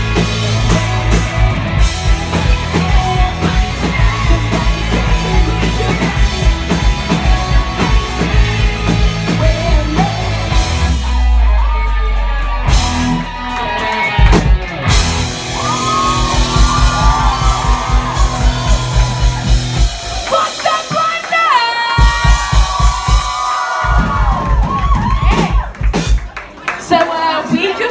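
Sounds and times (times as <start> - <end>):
electric guitar: 0.0 - 23.2
drum kit beat: 0.0 - 26.4
woman singing: 0.6 - 10.6.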